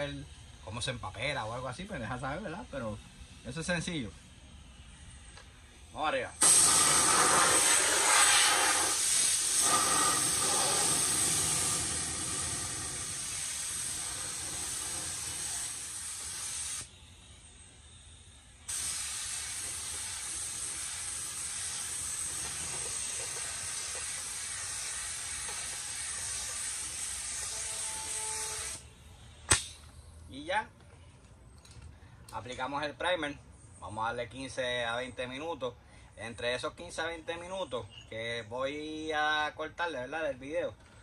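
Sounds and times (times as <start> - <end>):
paint spray gun hissing: 6.4 - 16.9, 18.7 - 28.8.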